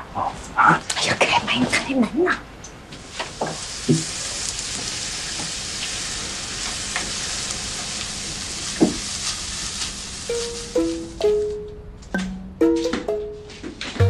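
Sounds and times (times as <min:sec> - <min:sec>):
food sizzling in a hot pan: 0:03.0 - 0:11.5.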